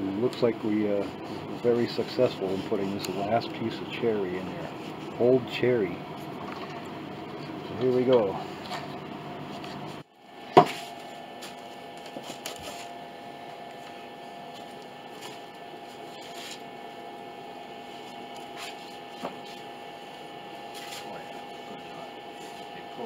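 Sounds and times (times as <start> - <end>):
workshop mechanical hum: 0.0 - 23.0.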